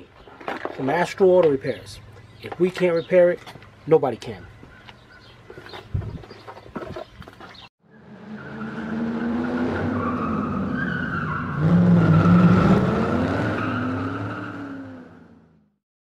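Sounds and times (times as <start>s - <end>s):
car engine: 7.8s - 15.8s
tyre squeal: 8.4s - 12.8s.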